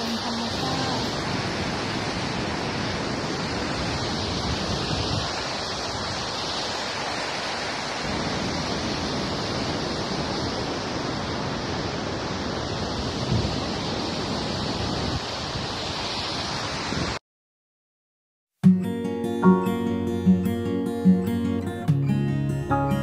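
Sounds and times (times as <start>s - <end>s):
white-water rapids rushing: 0.0s - 13.1s.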